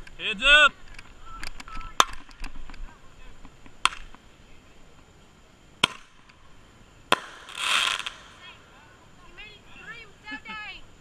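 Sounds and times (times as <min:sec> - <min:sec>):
faint fireworks pops: 0:00.0 - 0:04.3, 0:05.8 - 0:06.4, 0:07.1 - 0:08.6
fireworks bangs: 0:05.8 - 0:06.4, 0:07.1 - 0:08.7.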